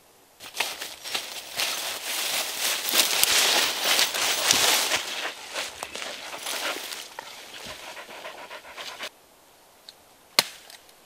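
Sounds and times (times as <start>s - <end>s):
footsteps through crackling undergrowth: 0.4s - 9.1s.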